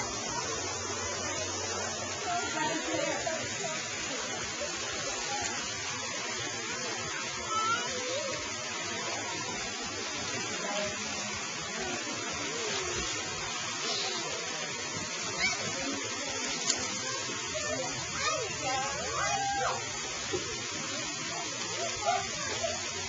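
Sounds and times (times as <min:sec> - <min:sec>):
faint children calling: 0:00.0 - 0:10.0, 0:11.9 - 0:23.0
fountain water spraying: 0:00.0 - 0:23.0.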